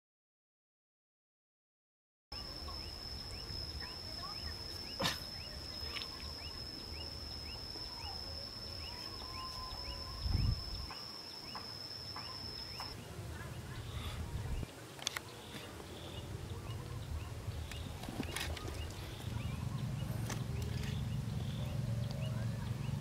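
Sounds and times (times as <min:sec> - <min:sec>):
high-pitched insect drone: 0:02.4 - 0:13.0
low whistled bird calls: 0:02.4 - 0:13.0.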